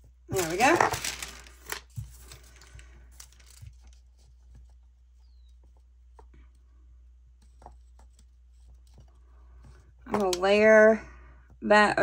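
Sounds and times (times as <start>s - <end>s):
paper sticker rustling and ticking: 0.3s - 6.3s.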